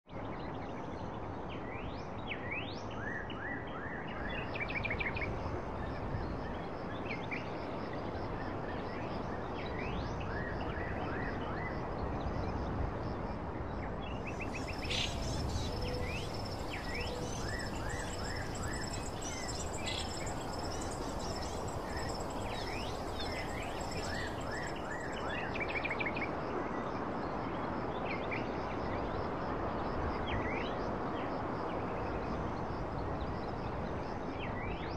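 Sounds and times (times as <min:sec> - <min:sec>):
background hiss: 0:14.2 - 0:25.8
birds chirping: 0:14.3 - 0:25.4.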